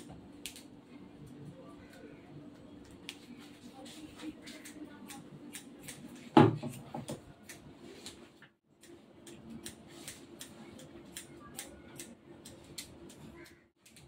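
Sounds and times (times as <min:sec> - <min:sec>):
scissors snipping hair: 0:00.0 - 0:00.7, 0:04.4 - 0:06.8, 0:07.4 - 0:14.0.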